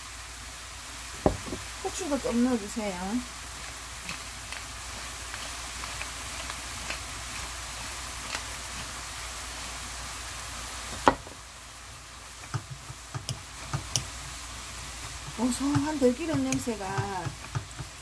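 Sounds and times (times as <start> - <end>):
food sizzling in a frying pan: 0.0 - 18.0
wooden spatula knocking on pan: 1.2 - 1.7, 12.4 - 14.1, 15.2 - 18.0.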